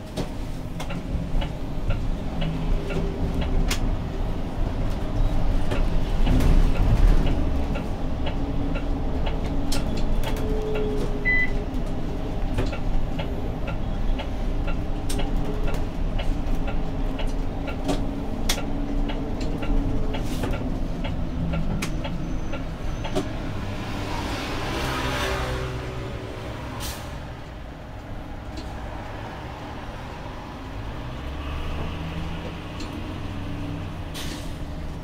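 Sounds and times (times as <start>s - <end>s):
bus drivetrain and road rumble: 0.0s - 35.0s.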